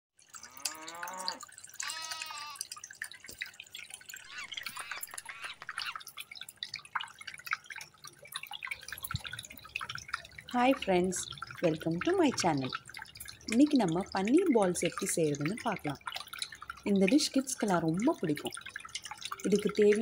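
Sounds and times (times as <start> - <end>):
water dripping in rock fountain: 0.2 - 20.0
animal calls: 0.4 - 2.7, 4.2 - 6.1.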